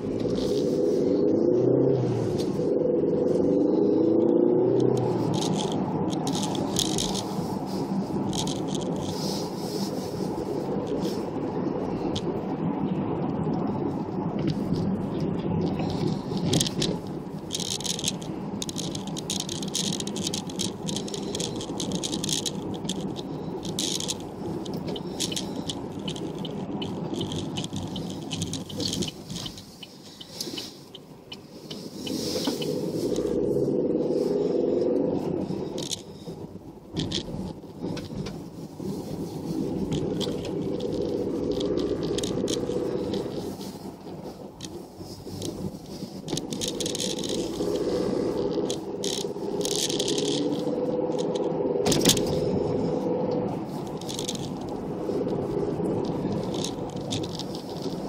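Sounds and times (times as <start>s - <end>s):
road and engine rumble: 0.0s - 58.0s
rattling and clicking in cabin: 14.4s - 31.8s, 36.9s - 47.6s, 48.4s - 52.5s, 53.8s - 58.0s.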